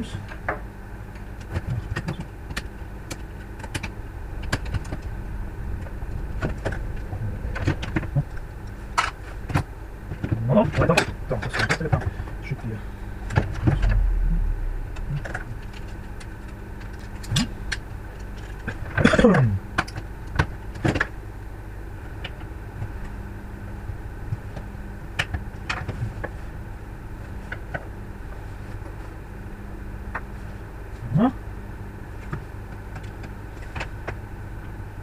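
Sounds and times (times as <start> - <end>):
steady low hum: 0.0 - 35.0
drawn-out sound falling in pitch: 13.7 - 15.9.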